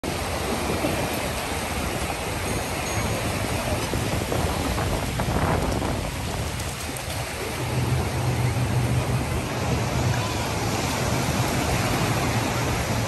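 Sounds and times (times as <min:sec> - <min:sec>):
lake waves washing on sandy shore: 0:00.0 - 0:13.0
low steady hum: 0:06.3 - 0:13.0.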